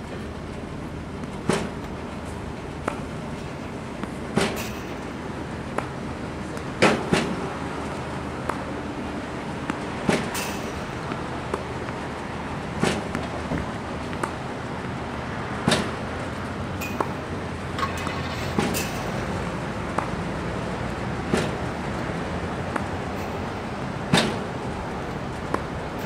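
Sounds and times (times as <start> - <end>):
racket hitting ball: 2.8 - 3.1, 12.8 - 13.3, 15.6 - 16.0, 16.8 - 20.2, 21.2 - 21.7, 24.1 - 24.5, 25.5 - 26.0.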